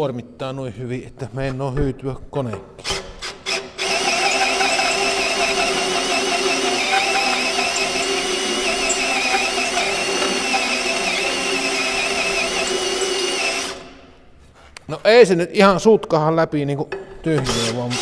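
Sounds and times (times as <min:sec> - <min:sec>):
drill motor whining under load: 0:03.2 - 0:14.1
hole saw teeth grinding steel: 0:03.5 - 0:14.0.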